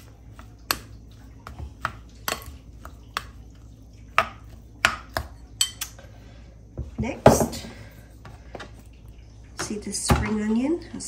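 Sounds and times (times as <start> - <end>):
rice squishing: 0.0 - 6.0
spoon clinking against glass: 5.6 - 5.9.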